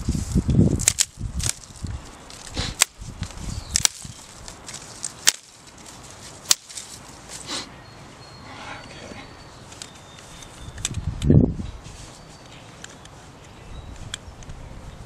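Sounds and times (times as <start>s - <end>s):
dry twigs snapping: 0.0s - 7.4s
dry grass rustling: 0.0s - 7.7s, 9.3s - 14.4s.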